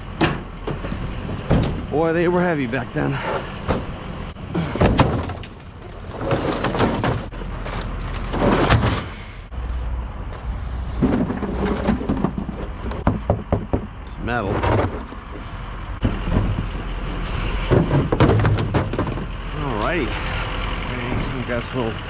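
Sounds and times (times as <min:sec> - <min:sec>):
heavy objects knocking and thumping: 0:00.2 - 0:02.0, 0:03.1 - 0:09.2, 0:10.8 - 0:19.3.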